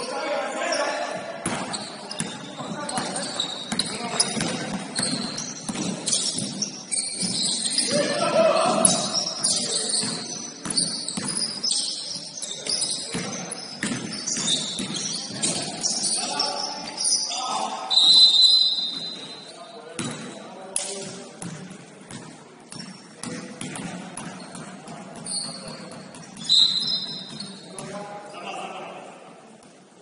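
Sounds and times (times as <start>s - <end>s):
sneakers squeaking on court: 0.0s - 28.0s
basketball bouncing: 1.4s - 7.8s, 10.0s - 11.6s, 13.1s - 15.8s, 21.4s - 28.0s
players shouting: 7.8s - 9.2s.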